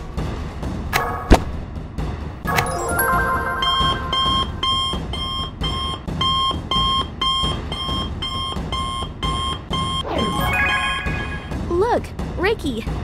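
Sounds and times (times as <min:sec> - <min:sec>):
smartwatch ringing two-tone beep: 0:03.5 - 0:11.5.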